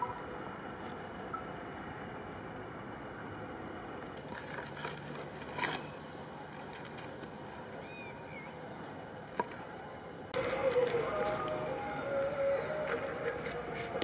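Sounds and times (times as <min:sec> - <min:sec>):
light scrapes and clicks: 0:04.2 - 0:11.6.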